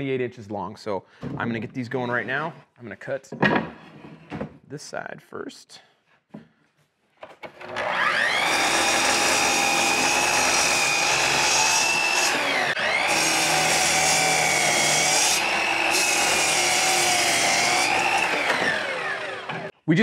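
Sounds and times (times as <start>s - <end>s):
miter saw whining: 7.7s - 19.7s.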